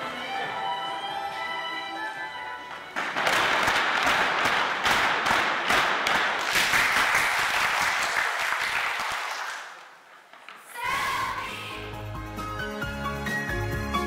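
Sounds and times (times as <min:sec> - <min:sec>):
music: 0:00.0 - 0:04.0, 0:11.2 - 0:14.0
crowd applauding: 0:02.9 - 0:10.1.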